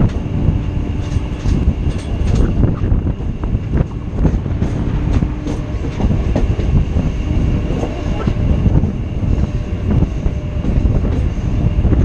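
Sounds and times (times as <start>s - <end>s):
train wheels rumbling: 0.0s - 12.0s
wind buffeting microphone: 0.0s - 12.0s
sharp clicks from rails: 0.9s - 2.9s.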